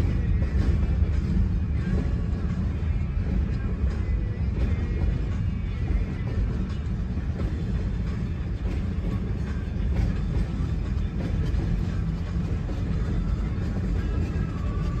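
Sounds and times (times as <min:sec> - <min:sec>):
freight train rumbling: 0:00.0 - 0:15.0.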